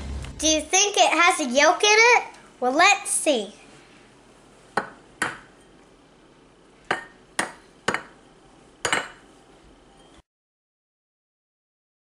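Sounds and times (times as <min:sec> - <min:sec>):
egg tapping on ceramic bowl: 0:04.8 - 0:05.5, 0:06.9 - 0:08.2, 0:08.8 - 0:09.2.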